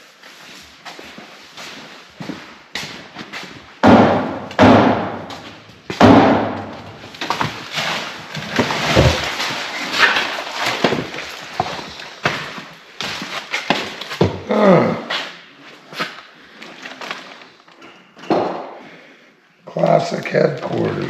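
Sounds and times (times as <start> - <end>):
boxes thudding down: 3.8 - 14.5.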